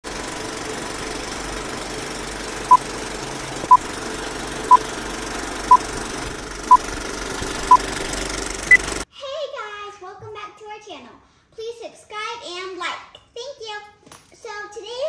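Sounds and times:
film projector rattle and hiss: 0.0 - 9.0.

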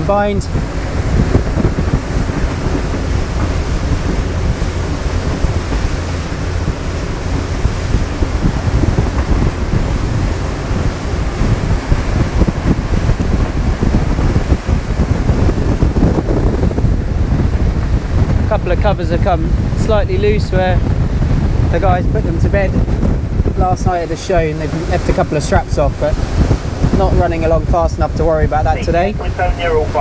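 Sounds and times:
rushing water: 0.0 - 30.0
steady low engine rumble: 0.0 - 30.0
wind buffeting the microphone: 0.0 - 30.0.

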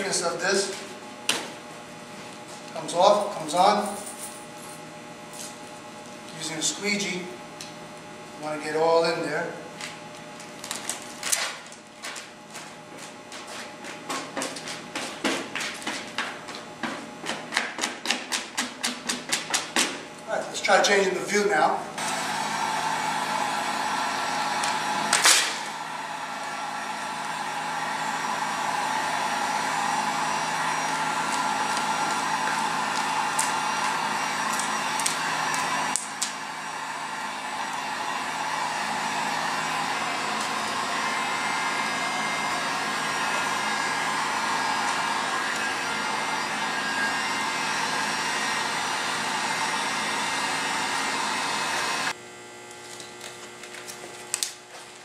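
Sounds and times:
heat gun blowing: 22.0 - 52.2.

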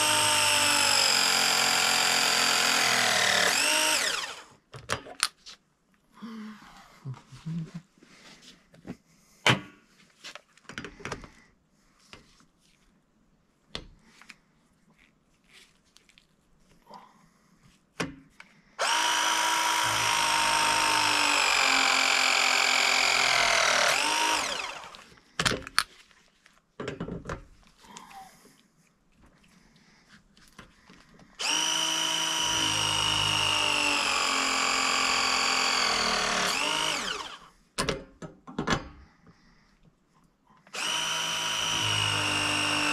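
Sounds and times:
press tool motor whine: 0.0 - 4.5, 18.8 - 25.1, 31.4 - 37.5, 40.7 - 42.9
clicks and knocks handling tool and pipe: 24.9 - 29.6.

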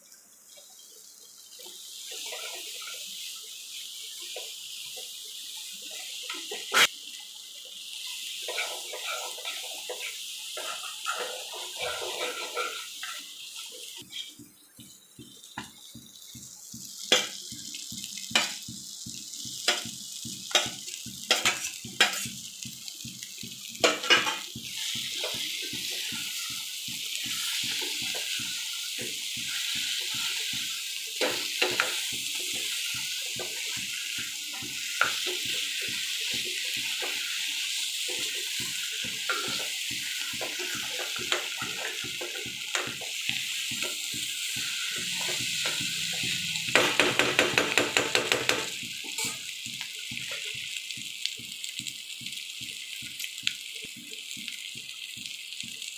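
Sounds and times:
prawns sizzling: 0.0 - 55.9
spatula knocking and scraping pan: 8.4 - 51.0.

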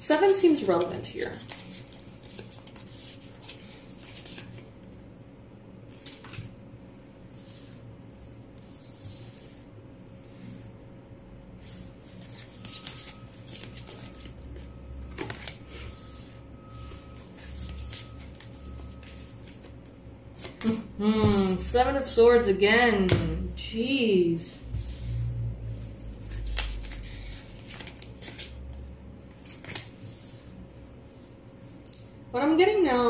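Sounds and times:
cards being shuffled: 0.2 - 4.7, 5.9 - 6.5, 12.0 - 15.9, 17.0 - 19.7, 20.4 - 20.8, 26.1 - 28.6, 29.3 - 30.4.

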